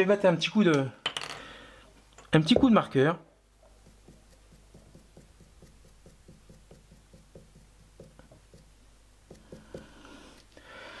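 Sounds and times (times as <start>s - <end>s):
marker strokes ticking on steel: 3.6s - 10.5s.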